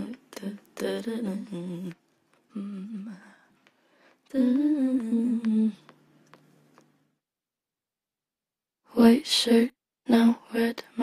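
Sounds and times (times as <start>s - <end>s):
woman humming: 0.0s - 3.5s, 4.3s - 6.0s.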